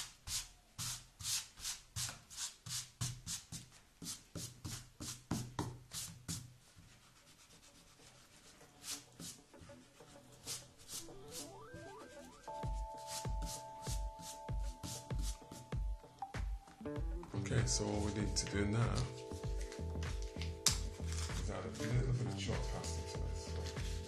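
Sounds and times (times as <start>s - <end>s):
hand rubbing across paper: 5.9s - 11.6s, 12.8s - 15.7s.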